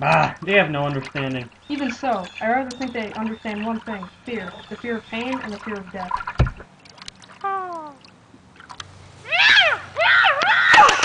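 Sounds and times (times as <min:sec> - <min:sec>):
thump: 0:06.4 - 0:06.6
cat-like yowling: 0:09.3 - 0:10.9.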